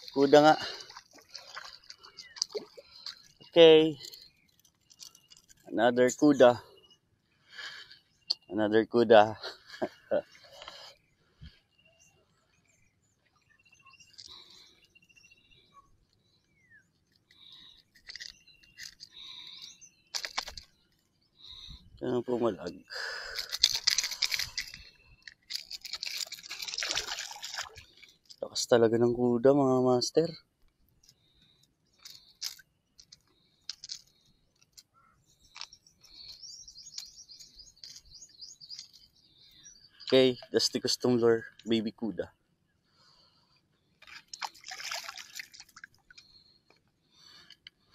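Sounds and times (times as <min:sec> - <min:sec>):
bird chirping: 0:00.0 - 0:08.8, 0:09.4 - 0:28.5, 0:30.2 - 0:47.9
bird trills: 0:31.1 - 0:40.6.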